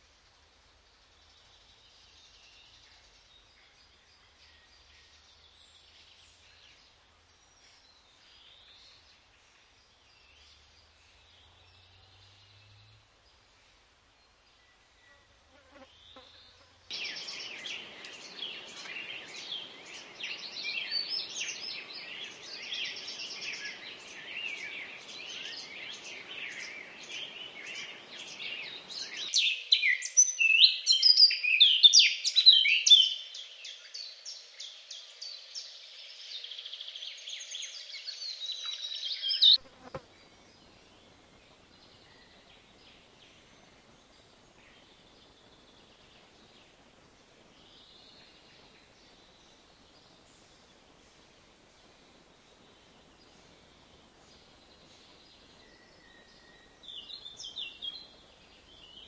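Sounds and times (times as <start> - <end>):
hummingbirds chirping: 14.2 - 59.0.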